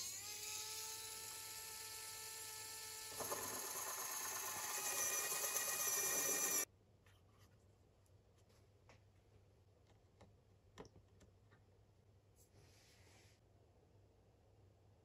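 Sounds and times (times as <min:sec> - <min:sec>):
small electric drill whining: 0:00.0 - 0:06.7.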